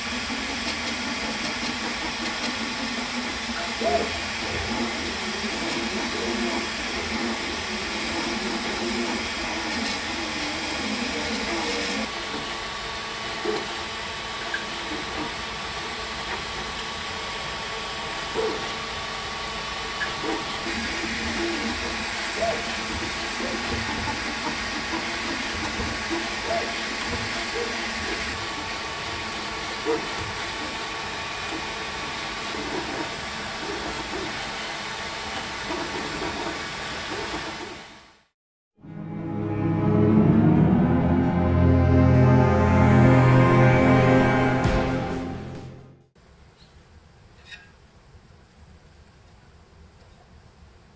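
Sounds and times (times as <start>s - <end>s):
three d printer fans and motors: 0.0s - 37.9s.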